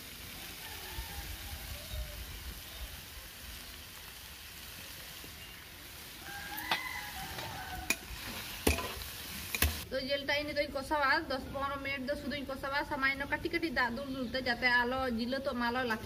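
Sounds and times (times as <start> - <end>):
chicken sizzling in oil: 0.0 - 9.9.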